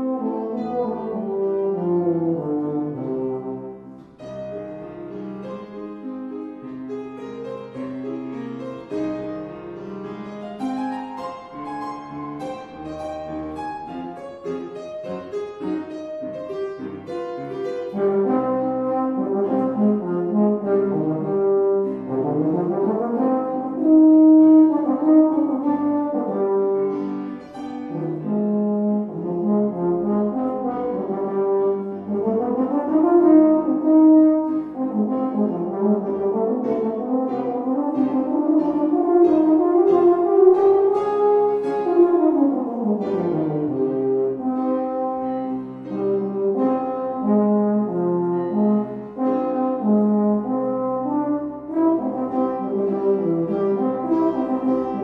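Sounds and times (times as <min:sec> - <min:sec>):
baritone horn solo: 0:00.0 - 0:03.9, 0:17.8 - 0:55.0
piano accompaniment: 0:00.0 - 0:55.0.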